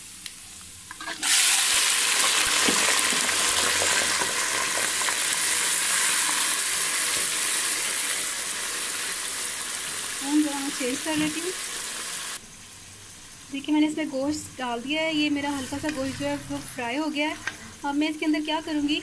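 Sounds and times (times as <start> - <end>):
meat frying hiss: 0.0 - 14.0.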